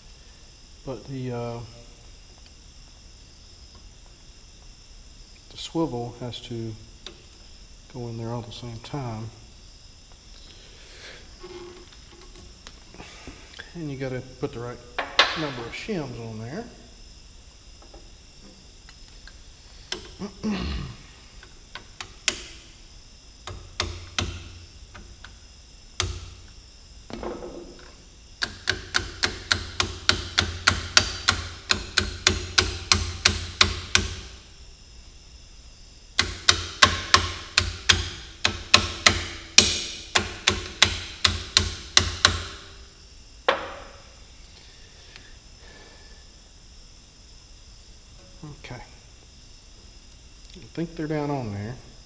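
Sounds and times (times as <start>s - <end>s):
hammer tapping on metal: 28.4s - 34.2s.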